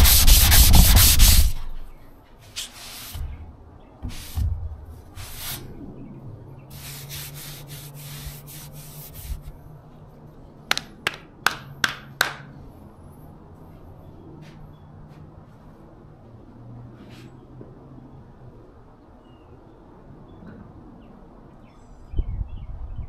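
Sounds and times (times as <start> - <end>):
sandpaper rubbing car bodywork: 0.0 - 3.3, 4.1 - 4.5, 5.2 - 5.6, 6.7 - 9.5
sharp knocks: 10.7 - 12.5.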